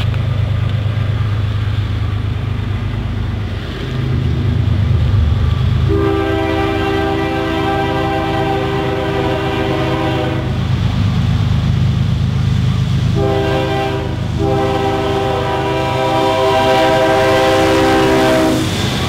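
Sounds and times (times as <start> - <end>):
diesel locomotive rumbling: 0.0 - 19.0
locomotive air horn blasts: 5.9 - 10.6, 13.1 - 18.8.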